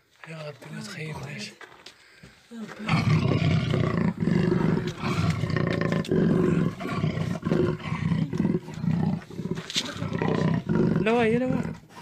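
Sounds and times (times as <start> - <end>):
loud deep roar: 2.9 - 11.8.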